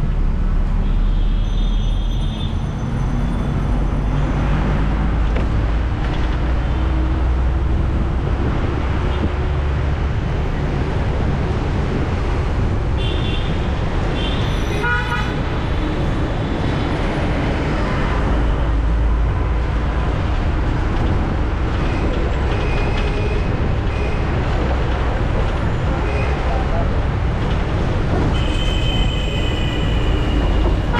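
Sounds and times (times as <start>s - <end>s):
road traffic rumble: 0.0s - 30.9s
vehicle horn toots: 28.3s - 30.9s.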